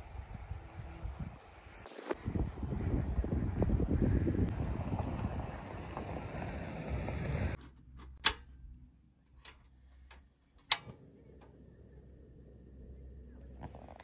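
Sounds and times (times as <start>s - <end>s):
steady wind: 0.0s - 14.0s
stove knob clicks: 8.0s - 8.5s, 9.5s - 11.0s
gas stove igniter clicks: 8.1s - 8.5s, 9.5s - 11.5s.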